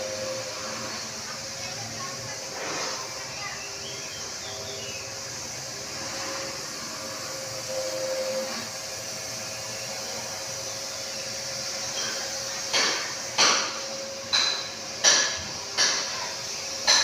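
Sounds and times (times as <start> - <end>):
faint hum: 7.6 - 8.8
hammer blows on metal: 11.9 - 17.0.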